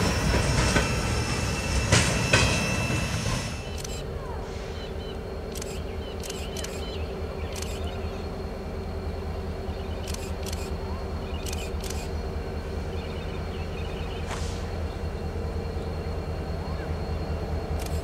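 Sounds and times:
low engine hum: 3.6s - 18.0s.

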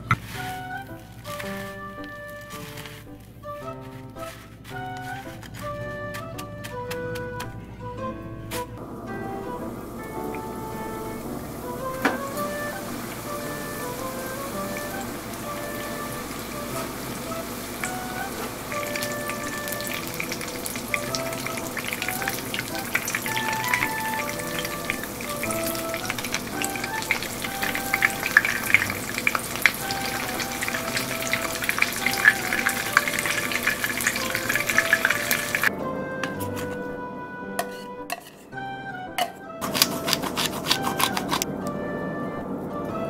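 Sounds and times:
food deep-frying in hot oil: 9.4s - 35.7s.

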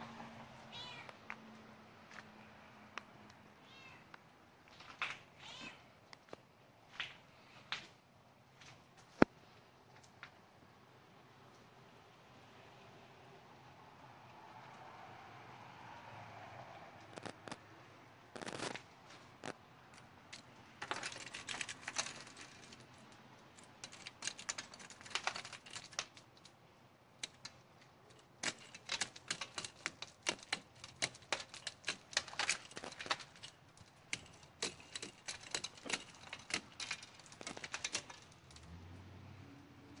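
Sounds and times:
icicles snapping and clinking: 19.4s - 38.8s.

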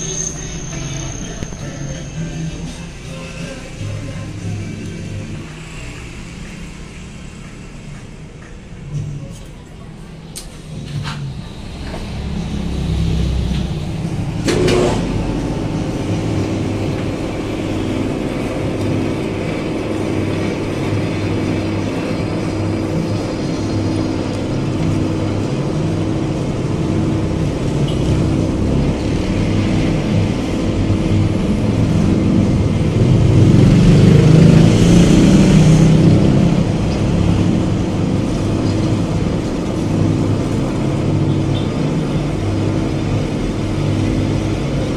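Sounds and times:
metal lathe humming: 10.6s - 44.9s.

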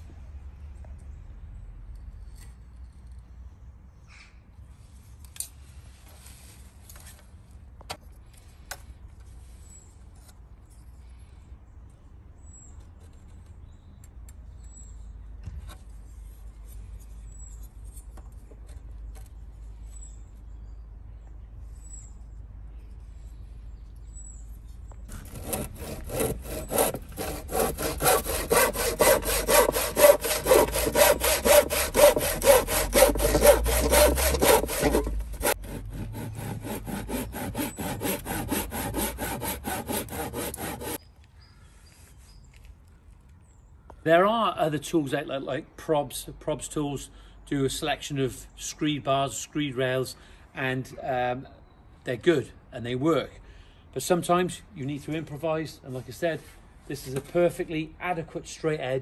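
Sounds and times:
hand saw cutting wood: 25.1s - 41.0s.

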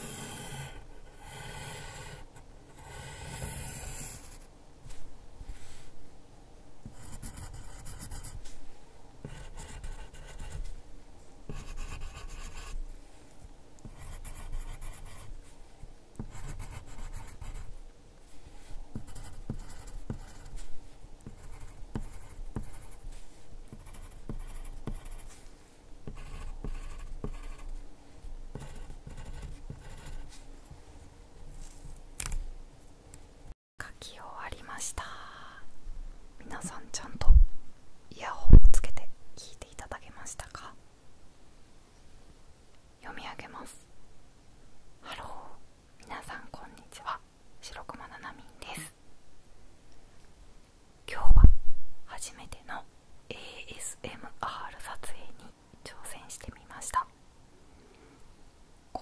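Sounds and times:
pencil scratching on paper: 0.0s - 4.4s, 6.9s - 8.4s, 9.2s - 10.7s, 11.5s - 12.8s, 13.9s - 15.4s, 16.2s - 17.7s, 19.0s - 25.4s, 26.1s - 27.8s, 28.5s - 30.5s.

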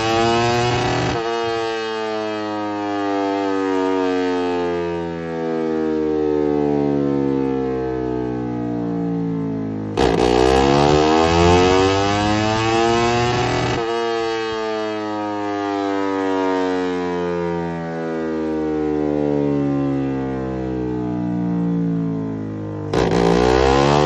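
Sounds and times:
motorcycle engine revving: 0.0s - 2.5s, 9.9s - 14.8s, 22.8s - 24.0s.

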